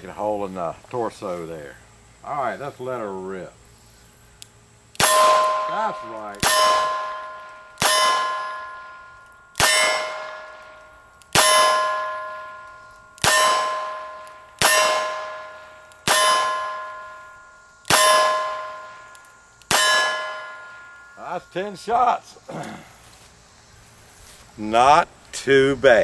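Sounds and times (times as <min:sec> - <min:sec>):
steel target ringing: 0:05.0 - 0:22.2.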